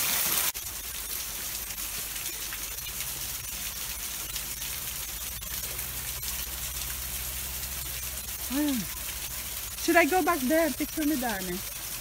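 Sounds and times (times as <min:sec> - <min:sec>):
water splashing onto rocks: 0:00.0 - 0:12.0.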